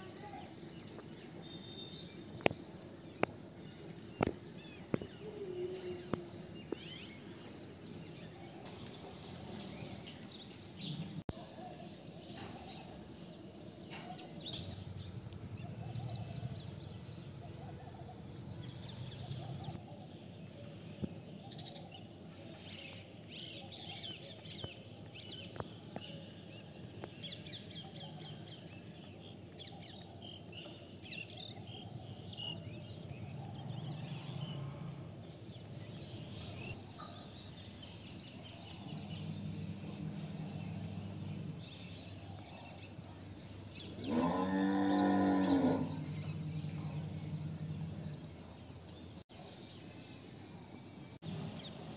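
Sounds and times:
small birds chirping: 0:00.0 - 0:11.3, 0:12.0 - 0:51.9
outdoor background noise: 0:00.0 - 0:51.9
faint low hum: 0:32.7 - 0:49.2.

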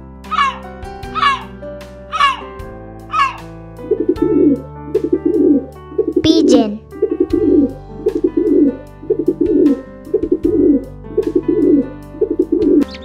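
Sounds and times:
pigeon cooing: 0:07.2 - 0:13.0.

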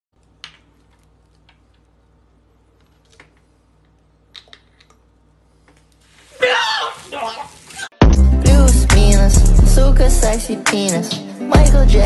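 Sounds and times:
low room hum: 0:00.2 - 0:07.9.

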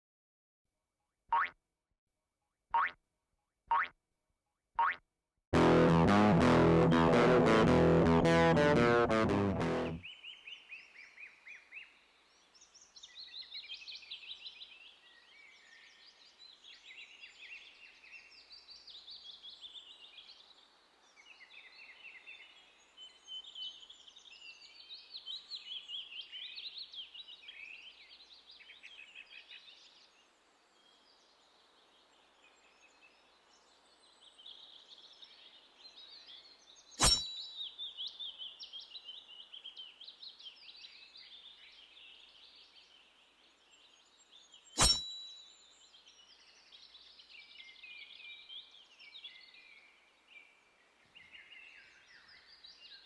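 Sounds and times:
forest birds chirping: 0:09.9 - 0:53.0
sharp knock: 0:37.0 - 0:37.3, 0:44.8 - 0:45.1.

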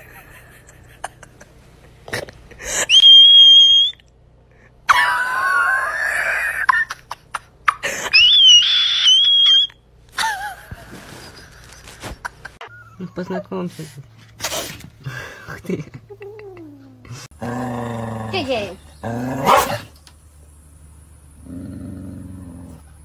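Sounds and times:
person squealing and crying: 0:04.9 - 0:06.9, 0:07.7 - 0:09.7.

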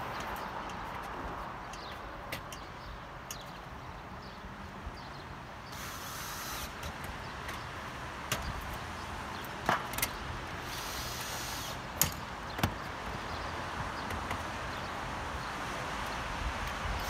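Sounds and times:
outdoor hiss: 0:05.6 - 0:06.9, 0:10.6 - 0:12.0.

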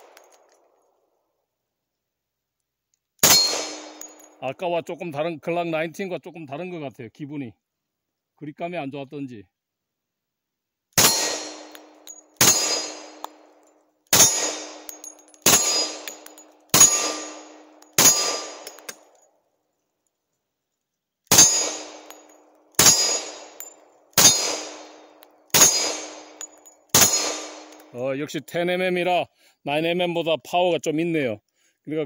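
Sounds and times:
pistol shots: 0:03.2 - 0:04.3, 0:11.0 - 0:13.4, 0:14.1 - 0:19.0, 0:21.3 - 0:27.9
steel target ringing clang: 0:03.2 - 0:04.3, 0:11.0 - 0:13.4, 0:14.2 - 0:18.9, 0:21.3 - 0:27.9.

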